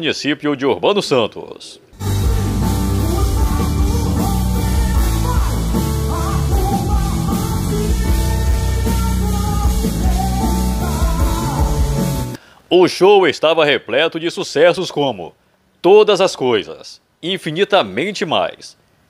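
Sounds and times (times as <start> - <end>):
live gospel band: 2.0 - 12.4
person singing: 2.0 - 12.4.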